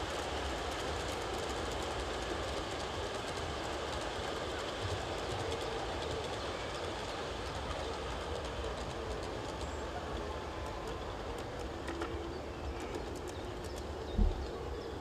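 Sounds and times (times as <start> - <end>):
model train rumbling on track: 0.0 - 15.0
short low thump: 14.2 - 14.5.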